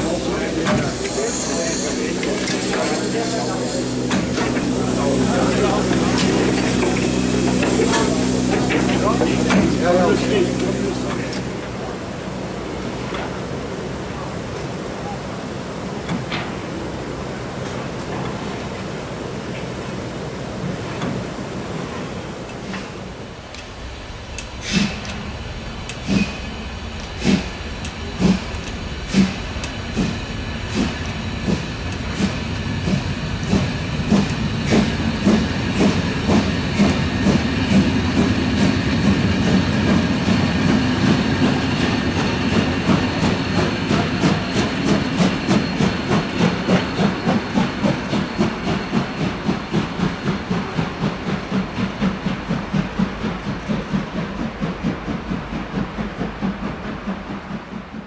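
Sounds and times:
steam hiss and rumble: 0.0s - 58.0s
steam locomotive chuffing: 0.0s - 58.0s.

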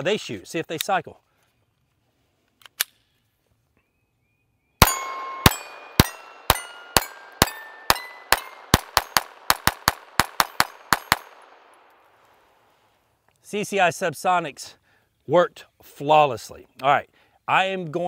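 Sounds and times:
steel target ringing: 4.8s - 9.4s
pistol shots: 4.8s - 11.9s.

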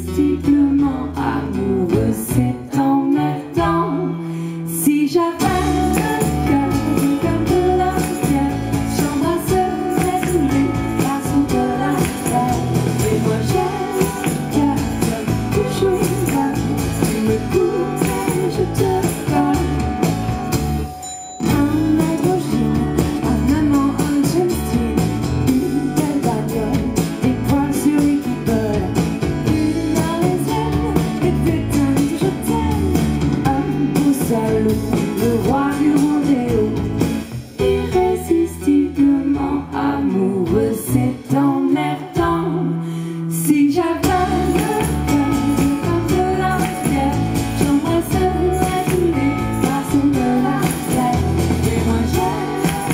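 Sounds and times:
electric bass: 0.0s - 4.8s, 5.4s - 20.9s, 21.5s - 52.9s
women singing: 0.0s - 20.6s, 21.4s - 52.9s
tambourine jingles: 5.6s - 22.3s, 44.2s - 52.9s.

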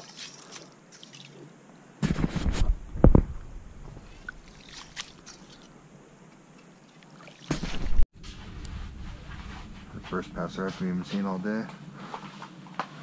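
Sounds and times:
rubbing on microphone: 2.0s - 4.2s.

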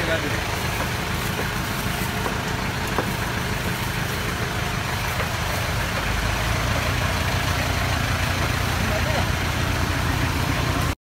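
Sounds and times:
engine idling: 0.0s - 11.0s
sharp tap: 2.2s - 3.2s.

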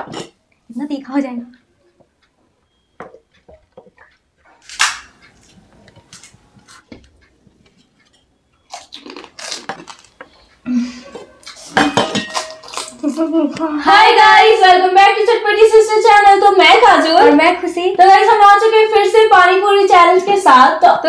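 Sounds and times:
crisp puris cracking: 8.7s - 10.4s, 12.4s - 13.3s
wet crunching and slurping: 8.7s - 10.5s.

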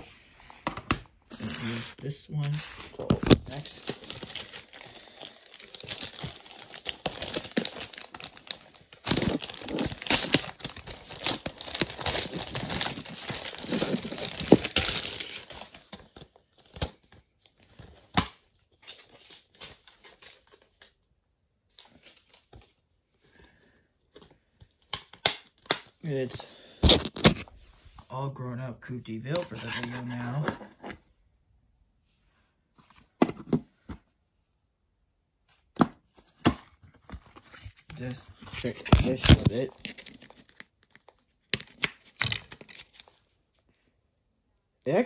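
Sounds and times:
packaging crinkling and tearing: 2.4s - 17.0s, 25.1s - 27.5s, 37.2s - 43.2s.

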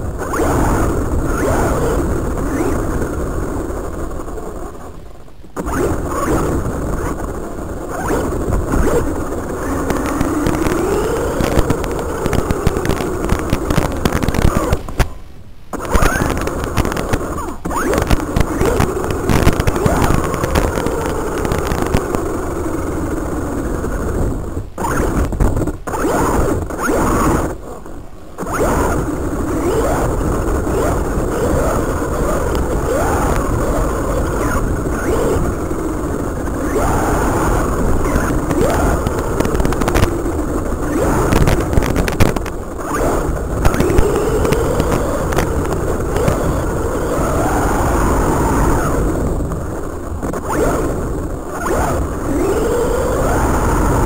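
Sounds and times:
tyre and drivetrain noise: 5.5s - 24.0s, 24.8s - 54.0s
rc car motor whining: 7.9s - 15.0s, 28.4s - 49.4s, 50.4s - 54.0s.

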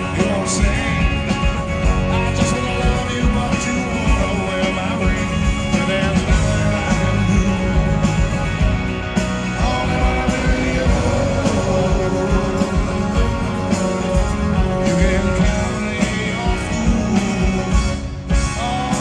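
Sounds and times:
lead vocal singing: 0.0s - 19.0s
steady drum beat: 0.0s - 19.0s
strummed acoustic guitar: 0.0s - 19.0s.

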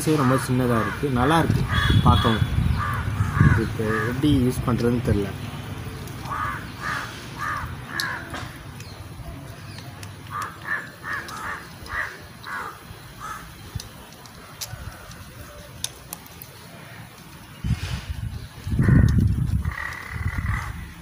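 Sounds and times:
crow cawing: 0.0s - 4.2s, 6.2s - 8.6s, 10.3s - 13.6s, 18.8s - 21.0s.

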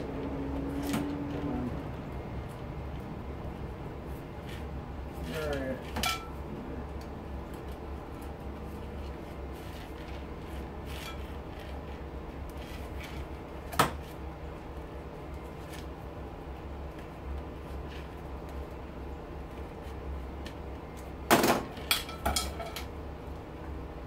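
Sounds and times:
low hum: 0.0s - 21.3s.

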